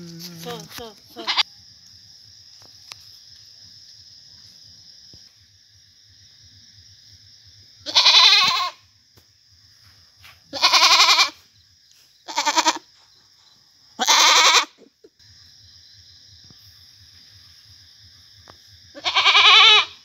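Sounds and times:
goat bleating loudly: 1.2s - 1.4s, 7.8s - 8.8s, 10.5s - 11.4s, 12.3s - 12.8s, 14.0s - 14.8s, 19.0s - 20.0s.

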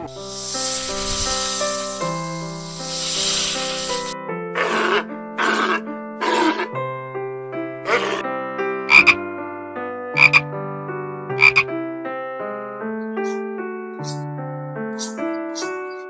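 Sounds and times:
frog croaking: 0.0s - 6.7s, 7.9s - 8.2s, 8.9s - 9.2s, 10.2s - 10.5s, 11.4s - 11.7s
gentle piano music: 0.0s - 16.0s.

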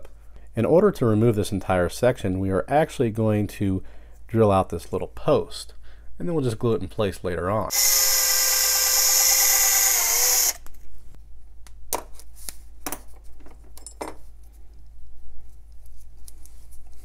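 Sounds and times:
cordless drill running: 7.7s - 10.7s.

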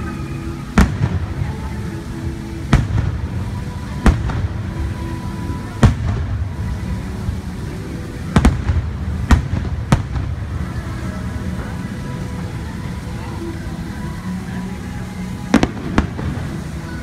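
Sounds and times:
continuous low rumble: 0.0s - 17.0s
music: 0.0s - 17.0s
firework shells bursting: 0.7s - 1.7s, 2.6s - 4.9s, 8.2s - 10.7s, 15.5s - 16.6s.

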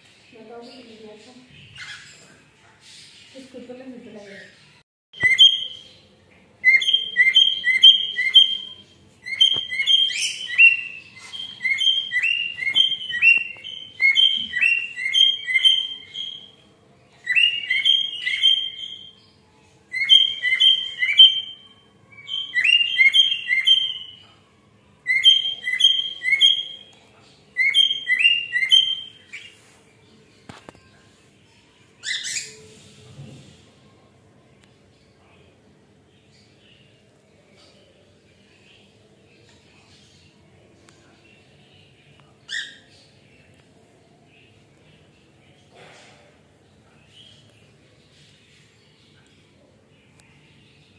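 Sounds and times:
cockatiel whistling: 5.2s - 5.8s, 6.6s - 8.7s, 9.3s - 16.5s, 19.9s - 21.6s, 27.6s - 29.2s.

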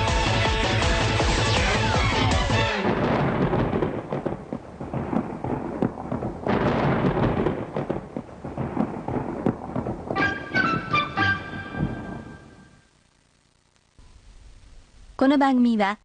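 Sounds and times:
heavy thuds: 2.8s - 12.7s
stone rumbling and crashing: 2.9s - 10.2s.

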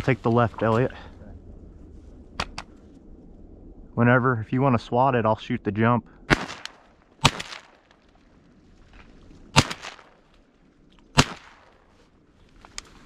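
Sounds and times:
shotgun shots: 6.3s - 8.0s, 9.5s - 10.2s, 11.1s - 11.9s.

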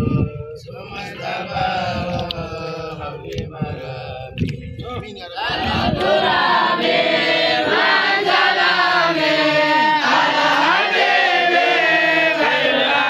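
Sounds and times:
children chanting in unison: 5.4s - 13.0s.

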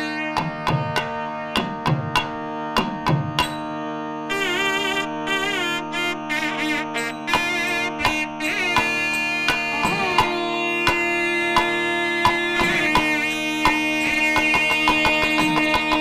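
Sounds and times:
double-reed pipe melody: 0.0s - 16.0s
barrel drum strokes: 7.3s - 16.0s.

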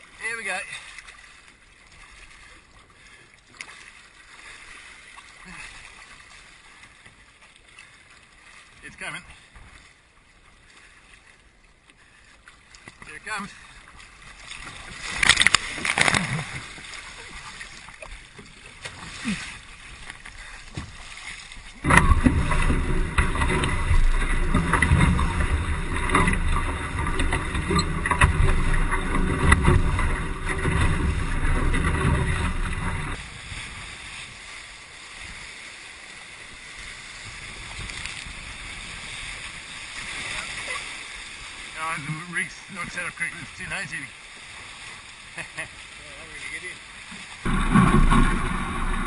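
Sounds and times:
water rushing past hull: 0.0s - 49.0s
water splashing: 0.0s - 49.0s
wind buffeting microphone: 21.8s - 34.2s, 47.4s - 49.0s.

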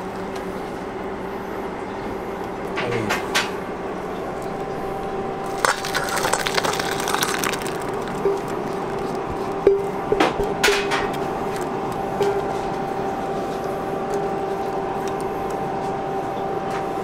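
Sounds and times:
steady electric hum: 0.0s - 17.0s
liquid pouring into bowl: 5.4s - 9.6s.

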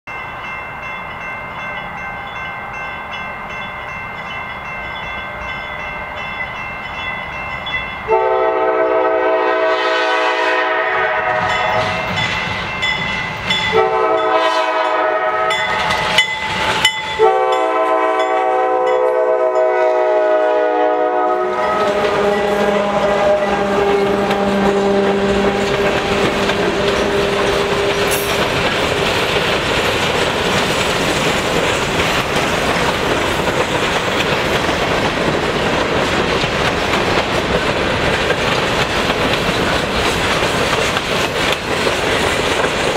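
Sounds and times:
diesel locomotives running: 2.4s - 42.9s
locomotive horn blasts: 8.1s - 12.2s, 13.7s - 15.8s, 17.2s - 28.3s.

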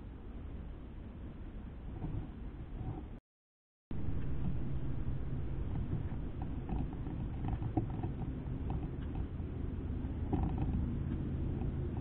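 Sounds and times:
steady low rumble: 3.9s - 12.0s.

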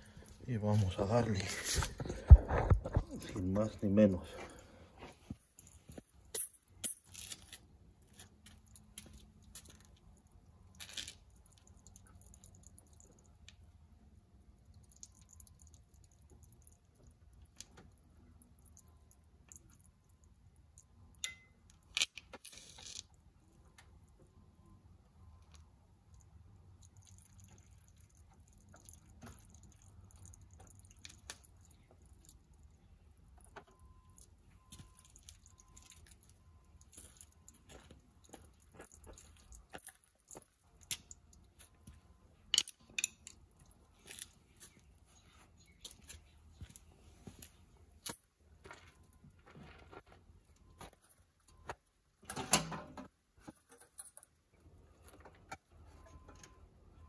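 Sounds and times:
metal tools clinking and tapping: 21.2s - 22.2s, 42.5s - 43.4s.

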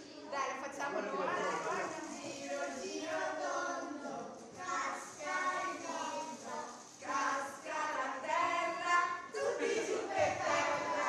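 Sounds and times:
children and women singing: 1.5s - 11.0s.

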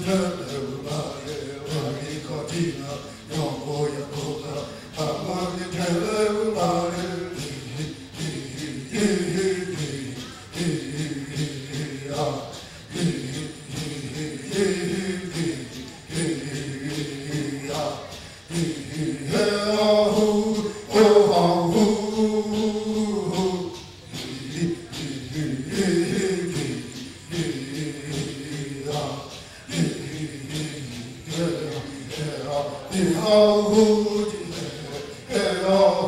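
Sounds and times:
hand rattles shaken: 0.0s - 36.0s
men chanting in unison: 0.0s - 36.0s.

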